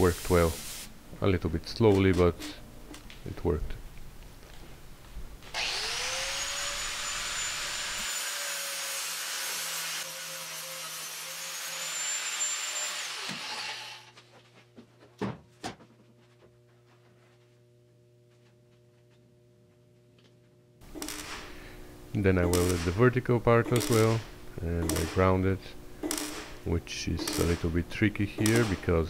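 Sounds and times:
angle grinder grinding metal: 0:05.5 - 0:14.1.

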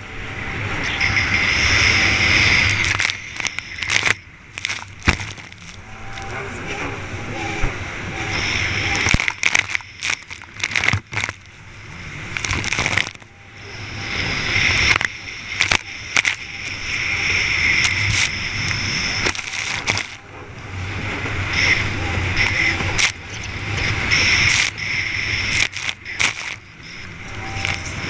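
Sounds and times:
jet ski engine whine: 0:00.0 - 0:28.0
water spray: 0:13.7 - 0:20.2.

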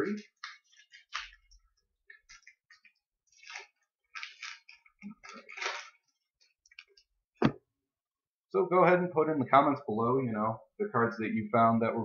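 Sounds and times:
foil wrapper crinkling: 0:00.0 - 0:07.1.

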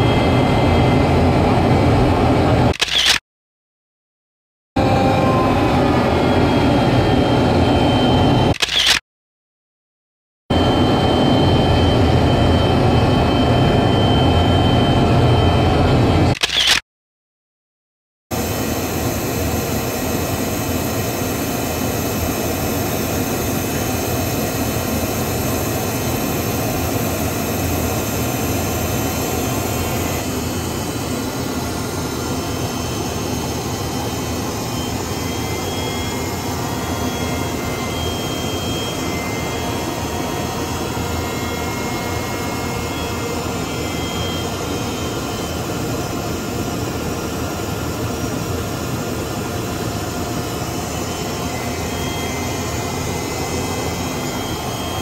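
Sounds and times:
jet engine and rushing air: 0:18.4 - 0:55.0
faint high whistling tones: 0:33.9 - 0:45.6, 0:50.7 - 0:55.0.

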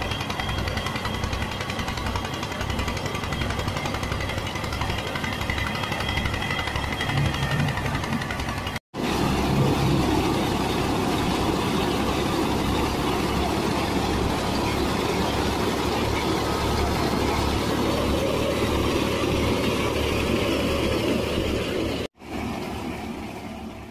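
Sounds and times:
threshing drum and blower noise: 0:00.0 - 0:23.9
tractor engine hum: 0:00.0 - 0:23.9.

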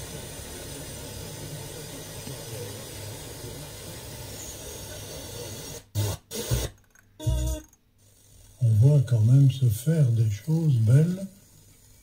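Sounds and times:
fm radio static hiss: 0:00.0 - 0:12.0
short loud tuner bursts: 0:05.8 - 0:07.7.

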